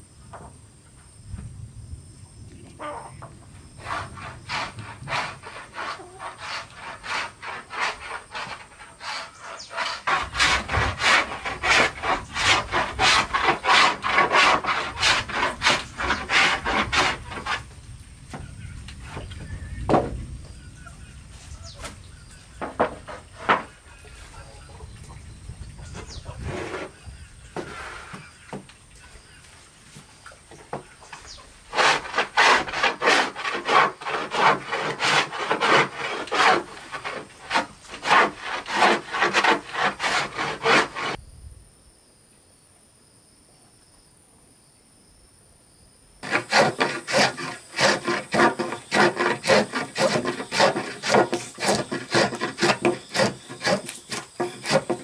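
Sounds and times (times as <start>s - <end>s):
hand plane shaving wood: 3.8s - 17.6s, 31.7s - 41.2s, 46.2s - 55.0s.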